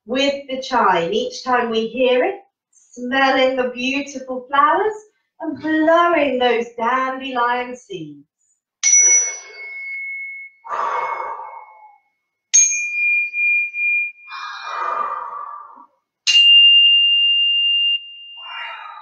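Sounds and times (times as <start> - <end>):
handheld chime ringing: 8.8 - 10.7, 12.6 - 14.3, 16.3 - 18.9
deep breaths blown out: 10.6 - 11.9, 14.3 - 16.0, 18.4 - 19.0.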